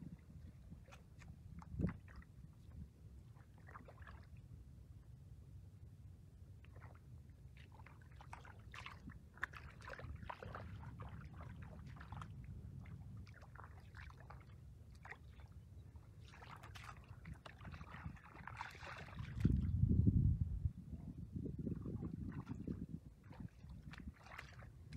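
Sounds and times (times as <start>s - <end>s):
low steady rumble: 0.0s - 24.9s
hands splashing in muddy water: 3.3s - 4.4s, 7.6s - 15.6s, 16.2s - 19.7s, 21.8s - 24.9s.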